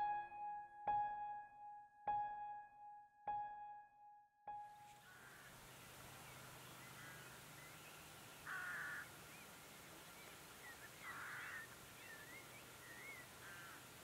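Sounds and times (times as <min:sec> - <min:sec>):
faint whistled bird notes: 0:12.0 - 0:13.3.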